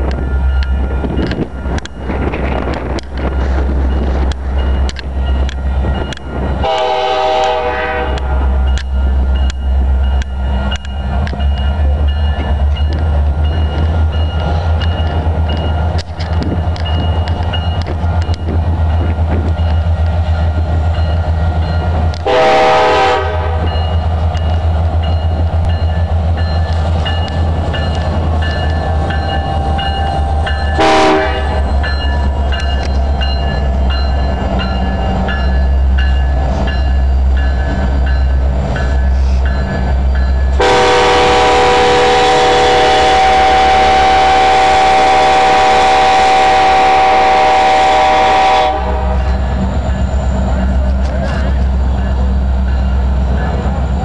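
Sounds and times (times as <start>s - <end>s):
diesel locomotives rumbling: 0.0s - 54.0s
multi-note air horn: 6.6s - 8.2s, 22.2s - 23.6s, 30.8s - 31.6s, 40.6s - 49.2s.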